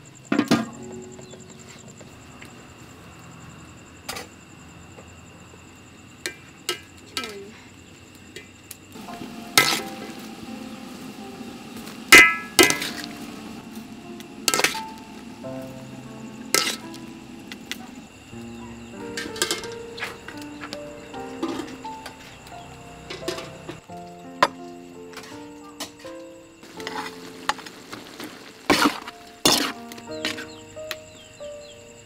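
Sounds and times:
soft background music: 0.4 - 2.4, 9.0 - 32.0.

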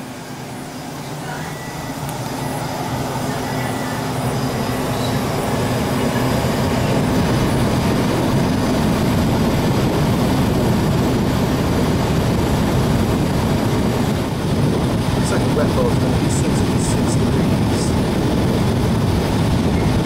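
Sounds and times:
air conditioner blower running: 0.0 - 20.0.

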